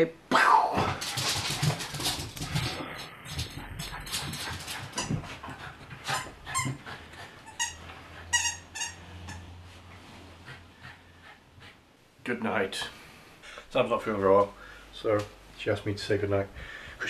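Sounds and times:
squeaky dog toy squeaking: 7.4 - 9.5.

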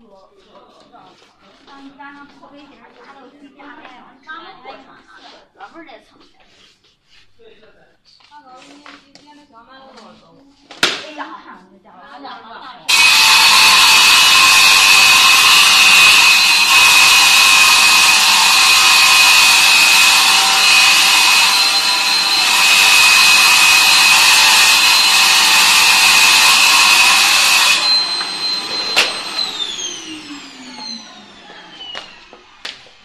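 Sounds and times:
table saw cutting vinyl plank: 12.9 - 33.0.

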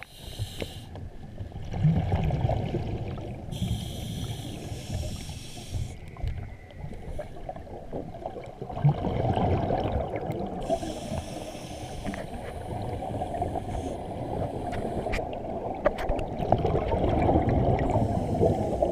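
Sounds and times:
hissing breath intake: 0.0 - 1.0, 3.5 - 6.1, 10.6 - 15.3, 17.9 - 18.9
underwater exhaled air bubbling: 0.0 - 18.9.

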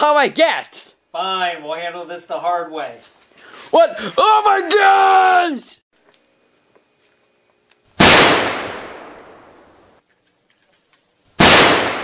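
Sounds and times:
gunshot sound effects: 8.0 - 9.5, 11.4 - 12.0.

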